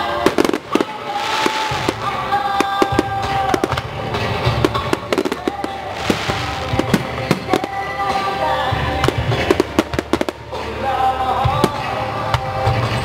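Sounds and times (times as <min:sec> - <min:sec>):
music with long held notes: 0:00.0 - 0:13.0
firework shells bursting: 0:00.3 - 0:08.4.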